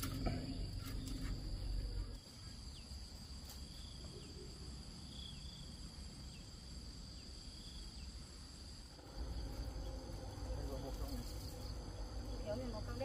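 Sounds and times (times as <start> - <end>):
insects droning: 0.0 - 13.0
low rumble: 8.9 - 13.0.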